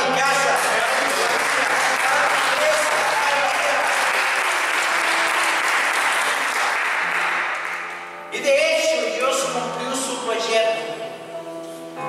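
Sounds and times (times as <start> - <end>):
congregation applauding: 0.0 - 8.2.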